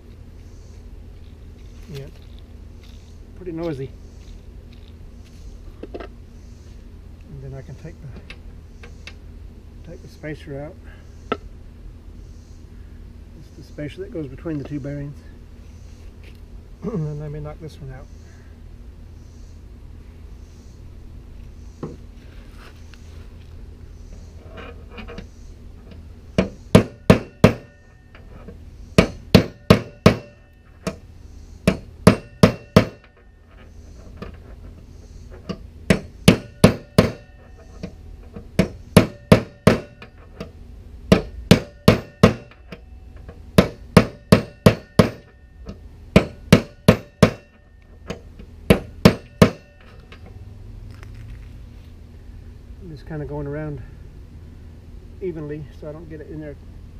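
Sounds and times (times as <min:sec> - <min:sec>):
hammer striking steel punch: 0:26.4 - 0:27.8, 0:29.0 - 0:31.0, 0:31.7 - 0:33.1, 0:35.9 - 0:37.5, 0:38.6 - 0:40.0, 0:41.1 - 0:42.8, 0:43.6 - 0:45.3, 0:46.1 - 0:49.9.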